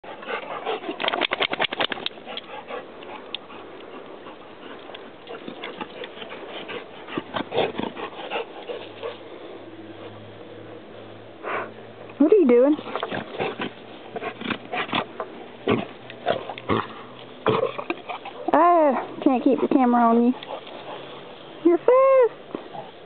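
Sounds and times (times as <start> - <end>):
dog claws clicking: 1.0 - 2.5.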